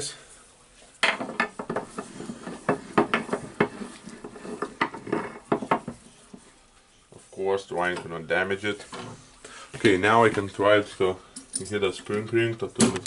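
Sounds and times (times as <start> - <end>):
metal clinking and knocking: 1.0 - 6.1.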